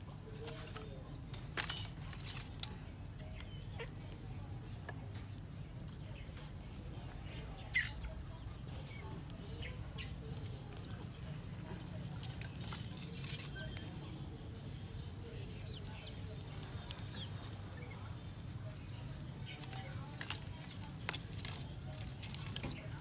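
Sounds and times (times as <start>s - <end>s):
chickens clucking: 0.1s - 23.0s
kindling sticks clicking: 0.4s - 3.5s, 19.5s - 23.0s.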